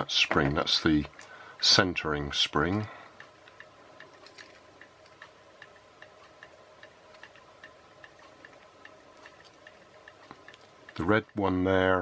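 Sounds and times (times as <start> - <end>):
faint steady hum: 0.0 - 12.0
faint even ticking: 2.4 - 12.0.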